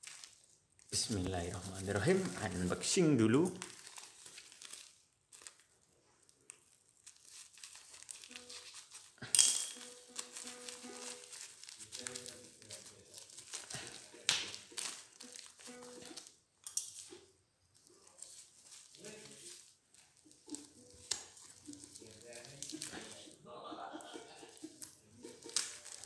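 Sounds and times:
plastic packaging crinkling: 0.0 - 23.4, 24.4 - 26.0
faint background music: 0.9 - 3.6, 8.2 - 16.4, 18.0 - 26.0.

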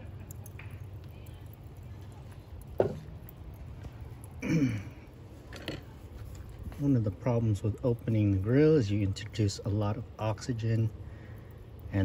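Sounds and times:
steady low hum: 0.0 - 12.0
man clearing throat: 4.4 - 5.0.

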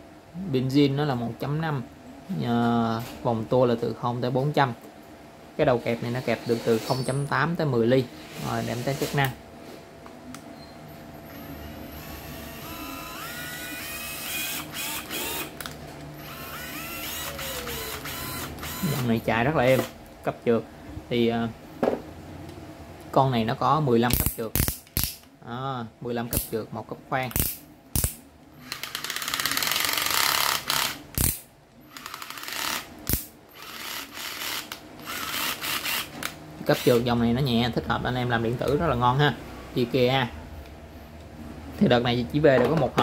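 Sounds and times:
cordless drill motor whining: 12.0 - 19.2, 31.9 - 32.9, 33.6 - 36.2
screwdriver clutch ratcheting: 28.7 - 37.0.

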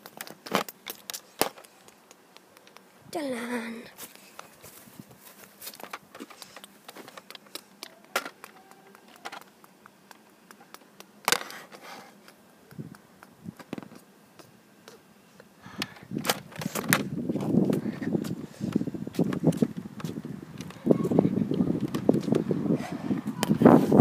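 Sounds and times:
clicks and knocks of handling: 5.4 - 15.0
footsteps on pavement: 16.6 - 22.5.

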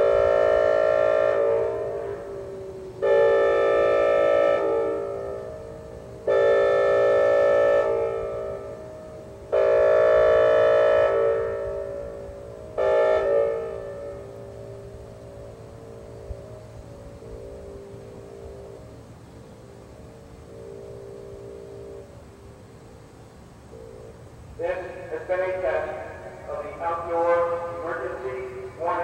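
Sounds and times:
electronic siren tone: 0.0 - 19.1, 19.8 - 22.6.

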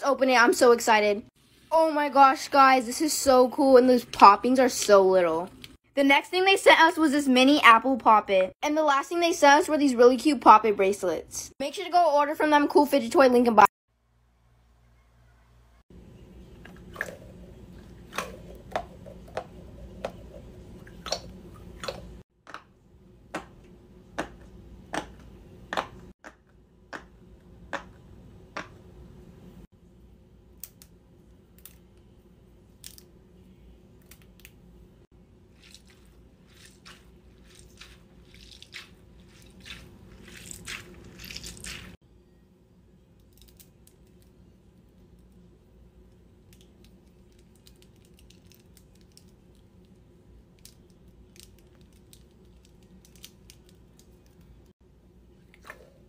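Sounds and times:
squishy balls squeezed: 35.5 - 42.0.

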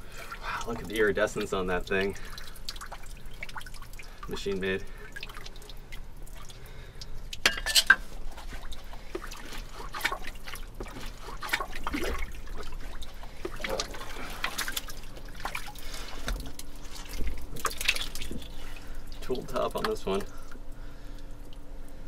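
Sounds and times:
wet liquid trickling and dripping: 0.0 - 22.0
wet splats and clicks: 0.7 - 4.1, 8.4 - 21.7.

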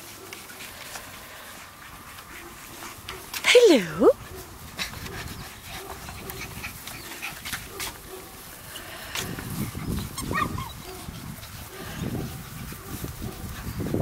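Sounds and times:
puppies scuffling on grass: 0.0 - 14.0
puppy yip: 10.2 - 11.1.

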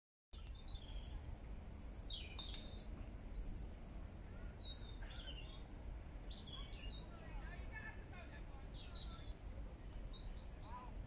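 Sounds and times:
songbirds singing and calling: 0.4 - 11.0.

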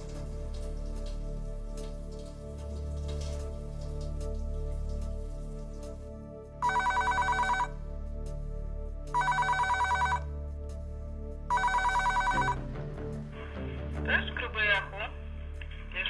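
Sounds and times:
quiet background music: 0.0 - 16.0
telephone bell ringing: 6.6 - 7.8, 9.2 - 10.3, 11.5 - 12.6.

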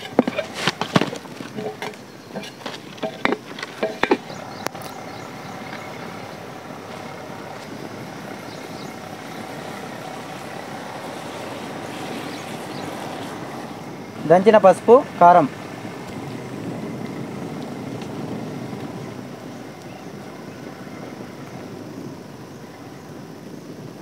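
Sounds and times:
metal pot clattering on brick: 0.0 - 4.4.

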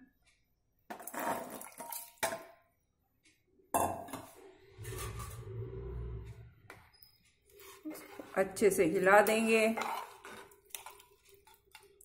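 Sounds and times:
low rumble: 4.7 - 6.8.

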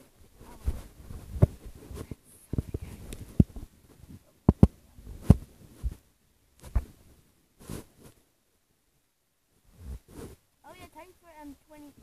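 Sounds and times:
handling knocks and rubs: 0.4 - 6.0, 7.6 - 8.2.

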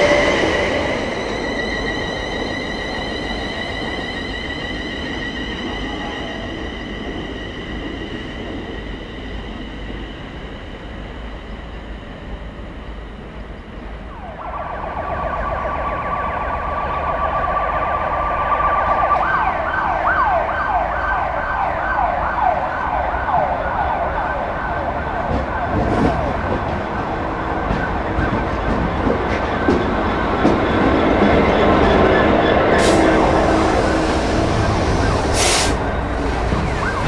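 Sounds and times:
emergency siren yelping: 14.1 - 26.6, 31.1 - 37.0
diesel locomotive rumble: 25.1 - 37.0.

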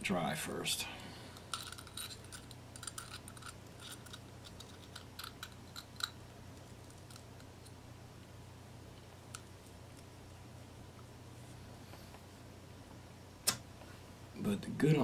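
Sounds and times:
low steady hum: 0.0 - 15.0
porcelain pieces clicking: 1.4 - 7.5.

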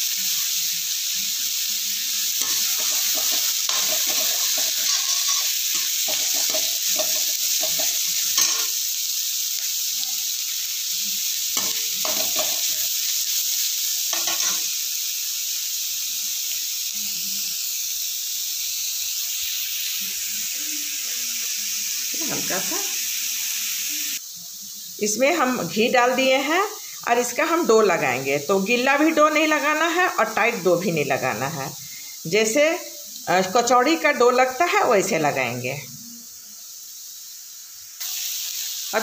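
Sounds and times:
vegetables sizzling in oil: 0.0 - 39.0
metal spatula scraping pan: 2.4 - 8.8.

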